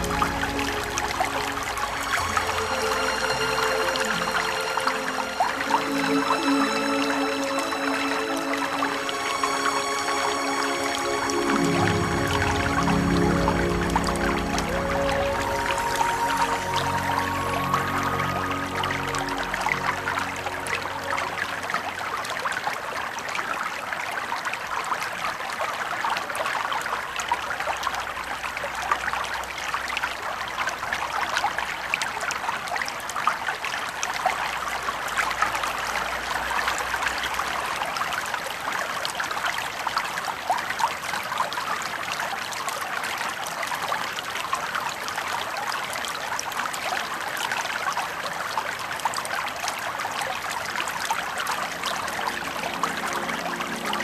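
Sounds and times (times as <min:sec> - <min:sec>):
stream water over rocks: 0:00.0 - 0:54.0.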